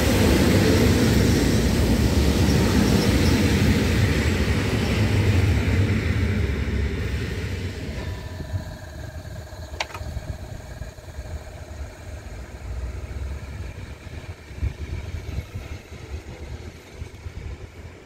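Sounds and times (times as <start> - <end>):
train wheels rumbling: 0.0 - 18.0
electric motor whine: 7.8 - 12.7
sharp click: 9.8 - 10.1.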